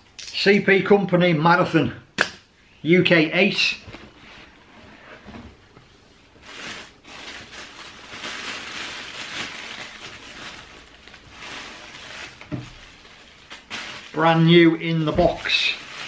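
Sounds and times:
tissue paper rustling: 0:04.4 - 0:16.0.

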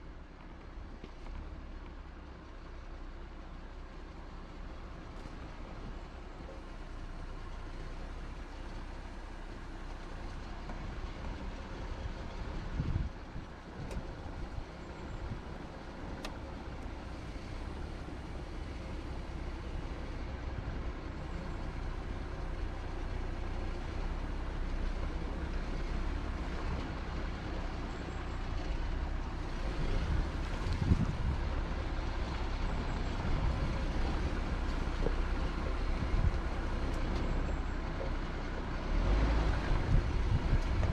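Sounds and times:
vehicle engine and tyres rumbling: 0:00.0 - 0:40.9.

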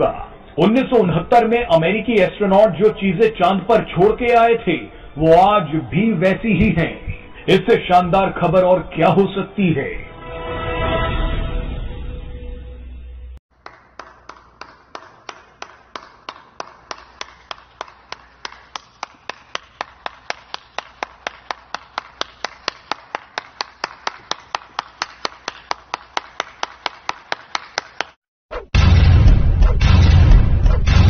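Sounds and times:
single hand claps: 0:13.6 - 0:28.2.

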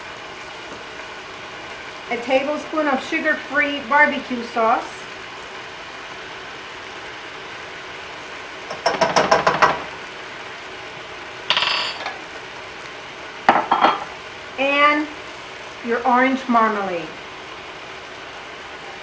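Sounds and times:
chicken sizzling in a skillet: 0:00.0 - 0:19.0
utensils clinking on dishes: 0:11.5 - 0:12.2, 0:13.5 - 0:14.1.

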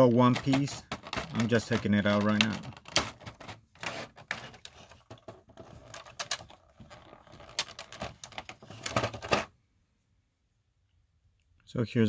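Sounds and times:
plastic parts clicking and rustling: 0:00.0 - 0:09.5.

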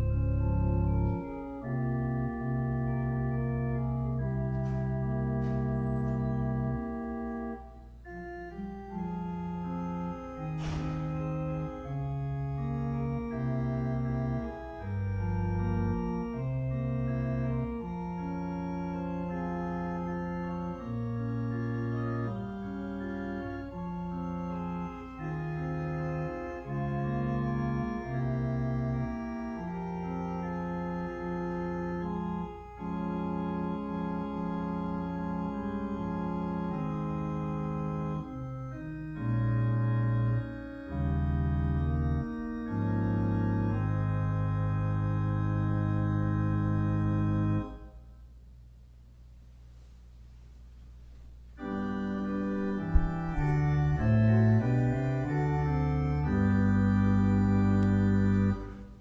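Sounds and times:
church organ chords: 0:00.0 - 0:48.4, 0:51.3 - 0:59.0.

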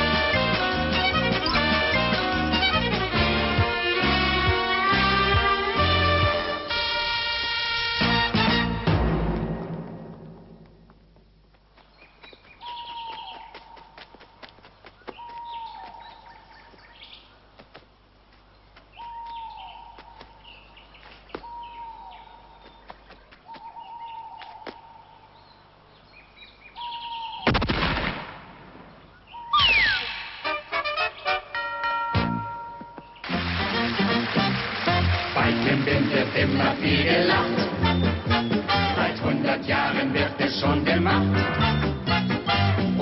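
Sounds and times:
bird calls: 0:11.8 - 0:17.5, 0:18.4 - 0:27.5, 0:29.0 - 0:30.4, 0:37.8 - 0:39.0
whistle falling in pitch: 0:29.5 - 0:30.6.

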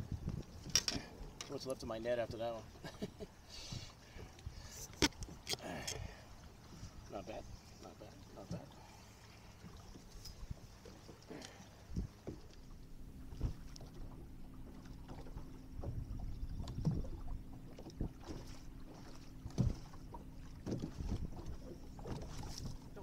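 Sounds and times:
knocks against boat: 0:19.4 - 0:23.0.

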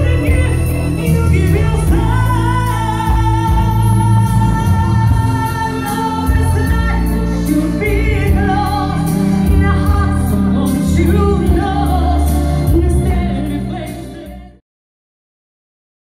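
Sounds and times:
live band playing pop song: 0:00.0 - 0:14.6
women singing: 0:00.0 - 0:14.6.

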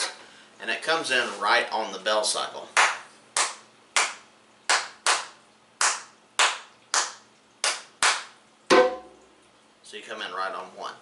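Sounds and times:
hand claps in syncopated rhythm: 0:02.7 - 0:09.0.

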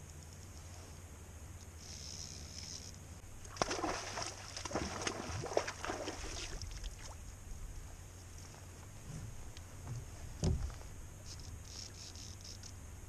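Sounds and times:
water splashing: 0:03.4 - 0:07.2.

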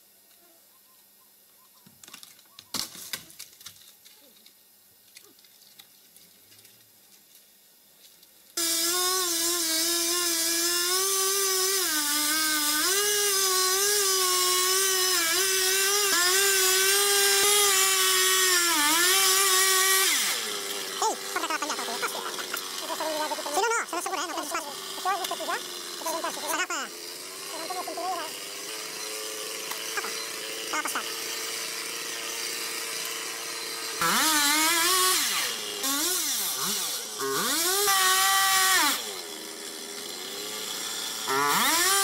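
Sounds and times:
chainsaw cutting wood: 0:08.6 - 0:42.0.

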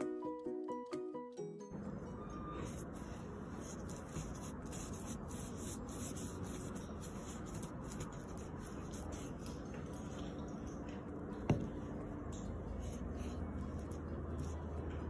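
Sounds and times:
brush scratching on fiberglass: 0:02.6 - 0:10.2, 0:12.7 - 0:15.0.

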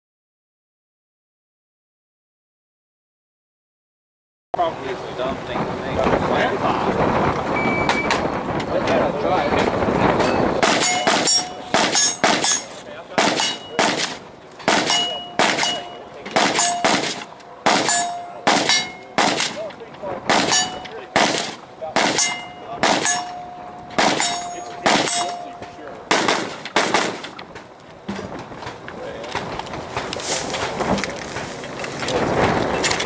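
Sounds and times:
steel targets ringing: 0:07.6 - 0:08.3, 0:10.1 - 0:28.4
rapid gunfire: 0:10.6 - 0:23.2, 0:24.0 - 0:25.2, 0:26.1 - 0:27.4.

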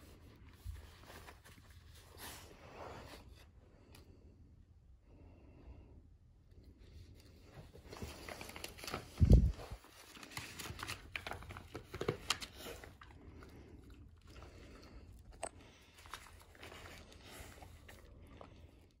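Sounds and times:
paper rustling and crinkling: 0:07.2 - 0:13.2, 0:15.7 - 0:18.5
dog chewing: 0:11.2 - 0:19.0.

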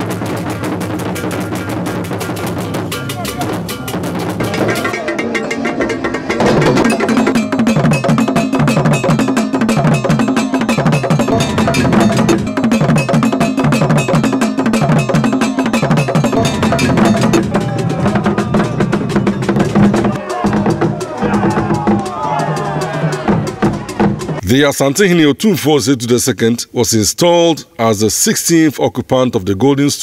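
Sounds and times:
loud drum rhythm: 0:00.0 - 0:25.1
iron bell pattern: 0:01.0 - 0:24.0.

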